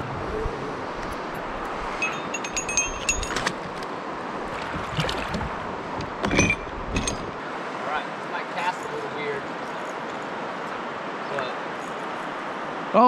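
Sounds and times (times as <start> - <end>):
wind noise: 0.0 - 7.4
river water: 0.0 - 13.0
fishing gear clinking and knocking: 2.0 - 3.9, 4.5 - 7.4.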